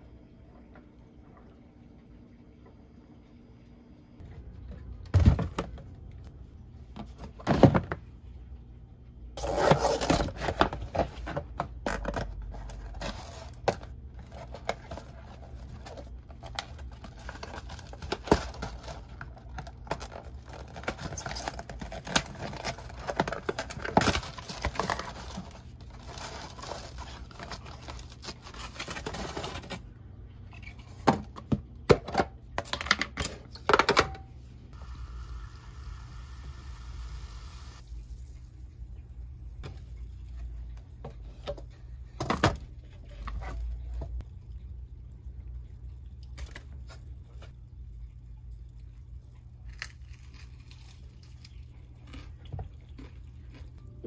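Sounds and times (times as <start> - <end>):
paper bag and cardboard rustling: 9.4 - 29.9.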